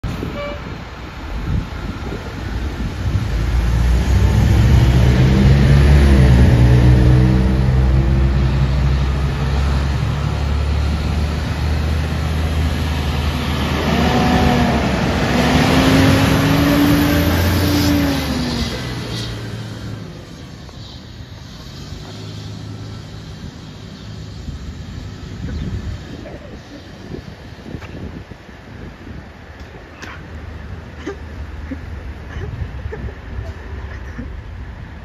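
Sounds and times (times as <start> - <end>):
diesel fire engine accelerating: 0.0 - 27.8.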